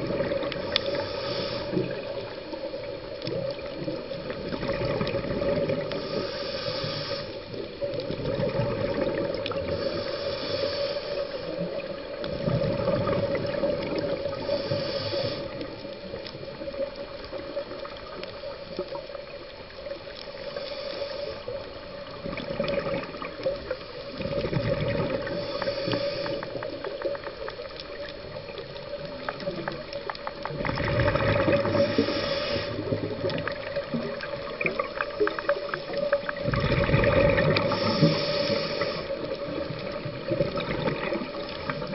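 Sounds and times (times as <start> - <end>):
regulator inhale hiss: 0.0 - 4.3, 5.3 - 41.9
exhaust bubbles rumbling: 8.1 - 9.8, 11.7 - 14.3, 22.1 - 25.5, 28.0 - 32.1, 32.8 - 38.3.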